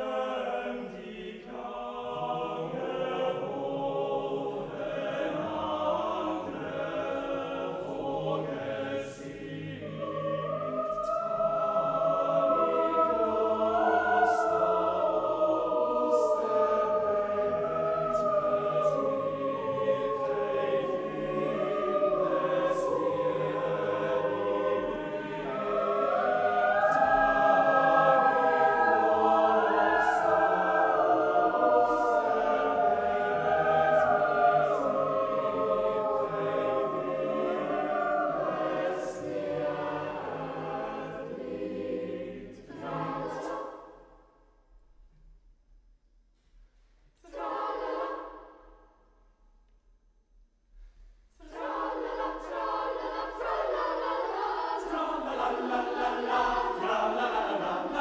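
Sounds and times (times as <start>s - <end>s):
boys' choir singing: 0.0s - 44.0s, 47.2s - 48.4s, 51.4s - 58.0s.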